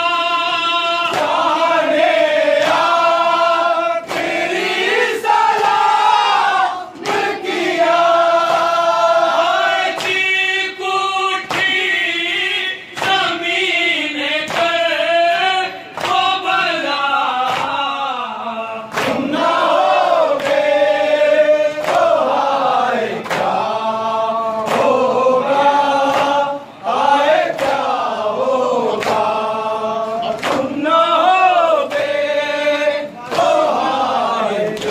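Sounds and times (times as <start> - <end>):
man reciting into a microphone: 0.0 - 4.1, 9.6 - 19.5, 22.8 - 34.9
men chanting together: 0.0 - 34.9
chest-beating slaps: 1.1 - 1.6, 4.0 - 5.8, 6.9 - 7.6, 18.9 - 19.3, 23.2 - 23.6, 26.1 - 26.5, 30.2 - 30.8.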